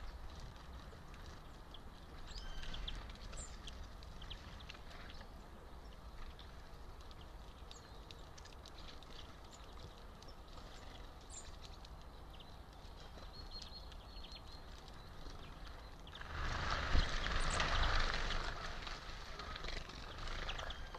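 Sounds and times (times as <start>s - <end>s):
rustling rushing noise with rumble: 15.1s - 20.9s.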